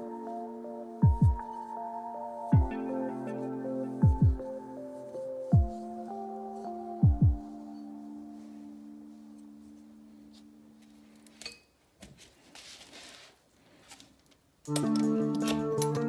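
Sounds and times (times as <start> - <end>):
held chord of background music: 0.0 - 10.7
soft scrape: 12.4 - 14.0.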